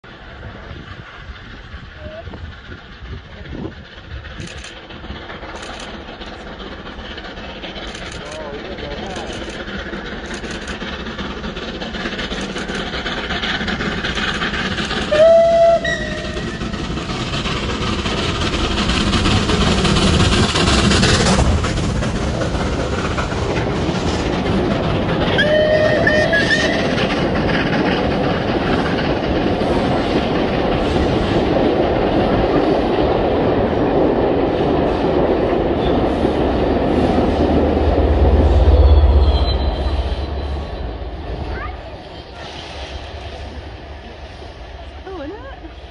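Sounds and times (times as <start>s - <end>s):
diesel locomotive rumble: 0.0s - 45.9s
steam locomotive passing: 0.0s - 45.9s
steam whistle blasts: 15.1s - 16.4s, 25.4s - 26.8s.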